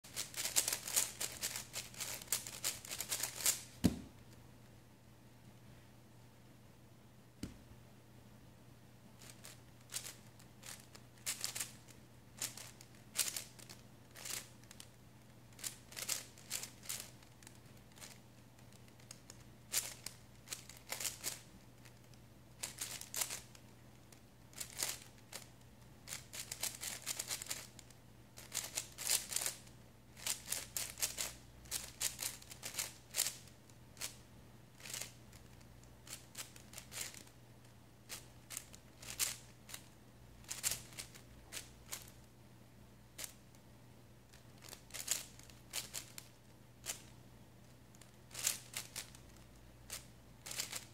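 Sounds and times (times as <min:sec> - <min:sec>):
plastic puzzle cube clicking: 0:15.5 - 0:23.6, 0:26.1 - 0:29.6, 0:44.6 - 0:47.1, 0:48.0 - 0:50.9.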